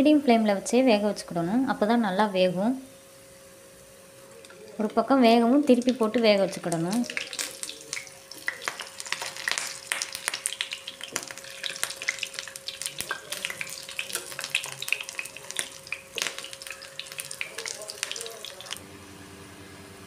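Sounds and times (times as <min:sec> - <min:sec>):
cutlets sizzling in hot oil: 0:05.4 - 0:18.8
steel spoons turning food: 0:05.6 - 0:18.8.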